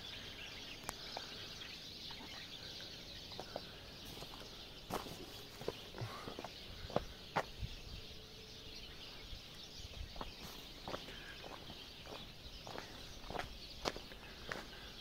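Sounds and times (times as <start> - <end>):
footsteps crunching on gravel: 3.4 - 7.6, 9.9 - 15.0.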